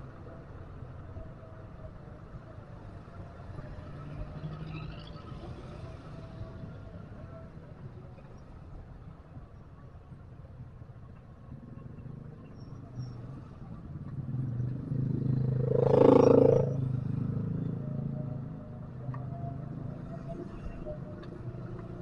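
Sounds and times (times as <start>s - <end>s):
low traffic engine hum: 0.0s - 22.0s
vehicle passing close by: 14.4s - 17.7s.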